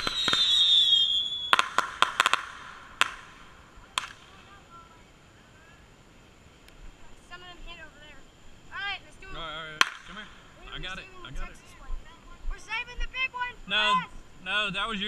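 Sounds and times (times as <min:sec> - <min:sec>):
firework whistle: 0:00.0 - 0:04.8
firework crackling pops: 0:00.0 - 0:05.0, 0:09.8 - 0:10.6.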